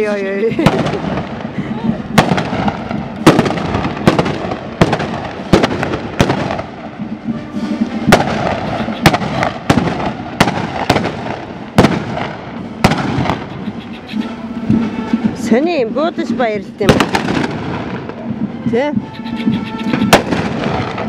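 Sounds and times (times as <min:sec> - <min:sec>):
guns firing blank shots: 0:08.1 - 0:13.6, 0:16.8 - 0:18.2.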